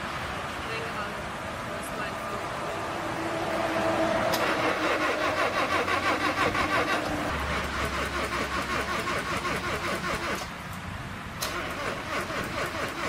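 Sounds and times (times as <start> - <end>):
car engine cranking: 4.3 - 10.8, 11.4 - 13.0.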